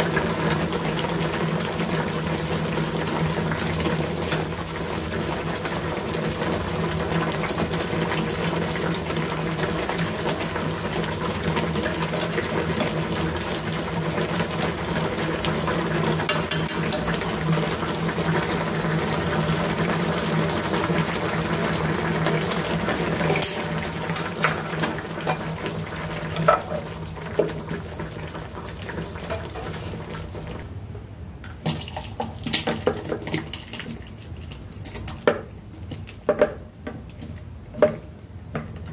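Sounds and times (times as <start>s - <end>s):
soup bubbling in a pan: 0.0s - 30.7s.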